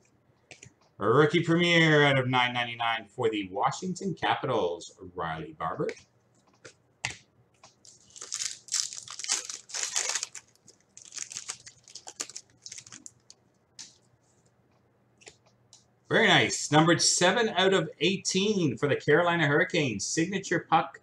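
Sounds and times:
wrapper crinkling and tearing: 7.8 - 13.4.

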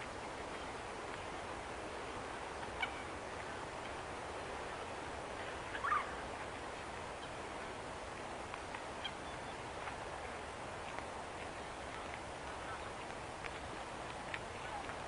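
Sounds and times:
short bird calls: 5.7 - 6.2.

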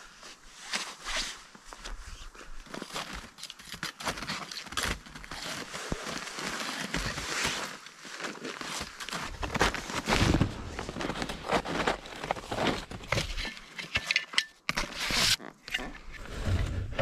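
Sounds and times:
nylon backpack rustling: 0.4 - 17.0
snowshoes crunching in snow: 4.9 - 13.4.

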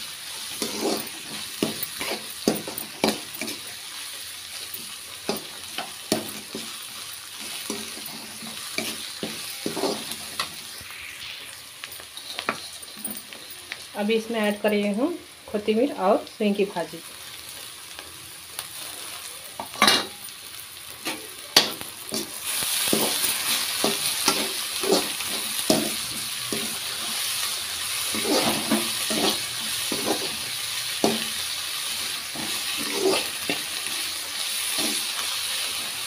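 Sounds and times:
onions sizzling in hot oil: 0.0 - 36.0
metal spatula scraping a pan: 0.4 - 3.8, 4.6 - 10.9, 12.0 - 13.5, 21.0 - 35.8.

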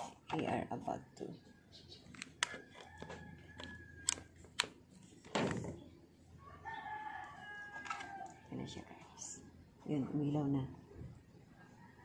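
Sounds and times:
rooster crowing: 2.5 - 4.4, 6.3 - 8.5, 11.5 - 12.0.

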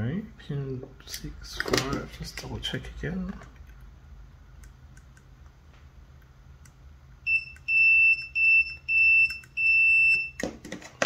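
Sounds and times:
multimeter beeping: 7.3 - 10.4.

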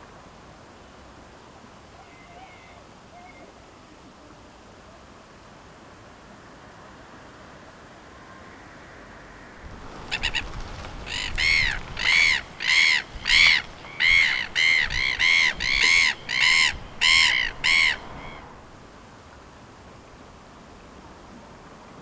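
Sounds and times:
sea and wind hiss: 0.0 - 22.0
gull squawking: 10.0 - 18.6.

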